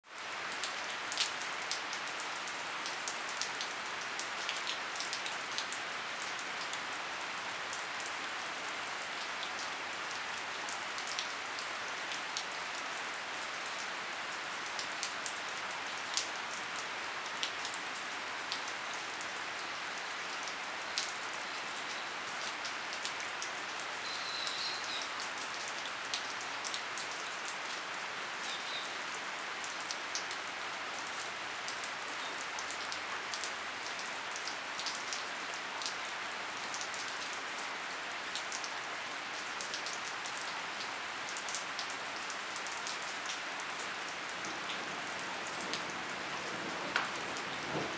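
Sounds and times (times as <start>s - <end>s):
rain on a wooden deck: 0.0s - 47.9s
raindrops tapping: 45.6s - 47.9s.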